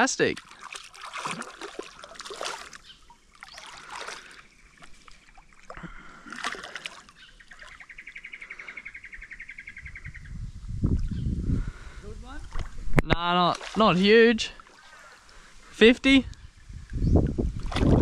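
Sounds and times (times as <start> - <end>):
water splashing: 0.0 - 8.1, 12.4 - 15.8, 17.5 - 18.0.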